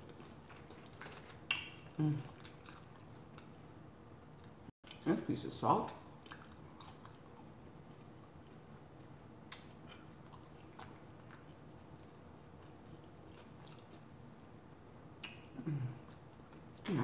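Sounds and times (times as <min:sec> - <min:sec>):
chewing close to microphone: 0:00.0 - 0:03.7, 0:06.2 - 0:14.5.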